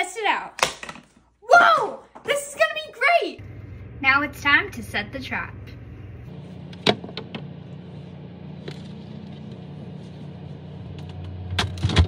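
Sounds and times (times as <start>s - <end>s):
steady low hum: 3.4s - 12.0s.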